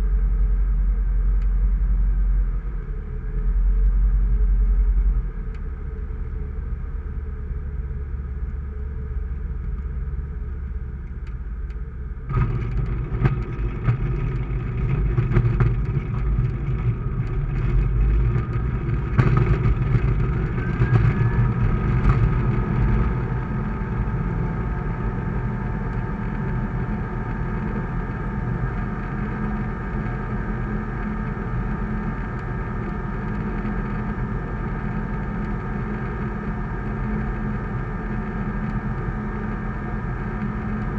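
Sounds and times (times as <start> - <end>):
aircraft engine droning: 0.0 - 40.9
wheels knocking on runway: 12.3 - 23.5.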